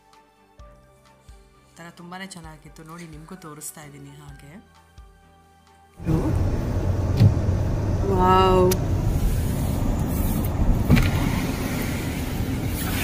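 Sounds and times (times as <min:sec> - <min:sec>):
tyre and engine rumble: 0:06.0 - 0:13.0.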